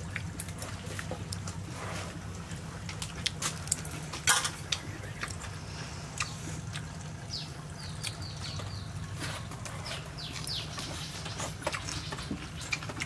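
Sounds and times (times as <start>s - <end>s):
steady low hum: 0.0s - 13.0s
bird chirping: 7.3s - 9.1s, 9.7s - 12.9s.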